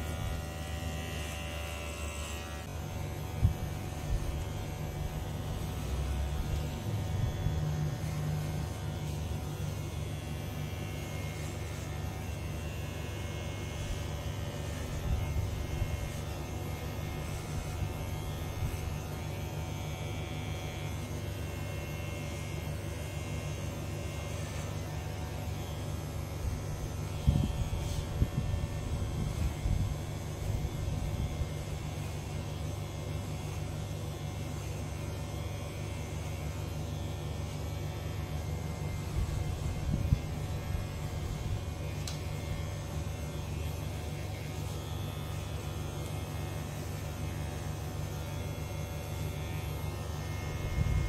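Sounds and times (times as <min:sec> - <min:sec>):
electric hair clipper buzzing: 0:00.0 - 0:51.0.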